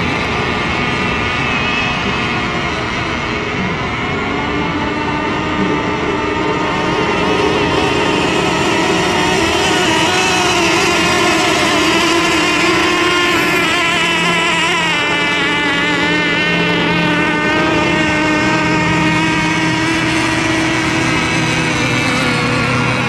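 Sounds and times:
racing boat motor whine: 0.0s - 23.0s.

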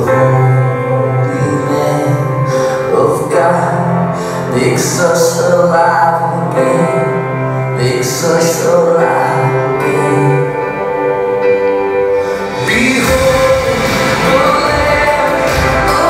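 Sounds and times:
instrumental accompaniment: 0.0s - 16.0s
person singing long notes: 0.0s - 16.0s
steady bass line: 10.9s - 16.0s.

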